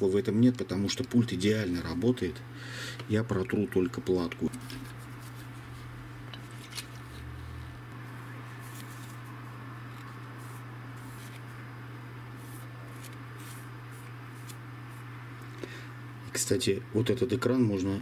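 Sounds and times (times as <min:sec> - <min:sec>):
cloth wiping circuit board: 0:04.5 - 0:11.7, 0:12.3 - 0:15.2.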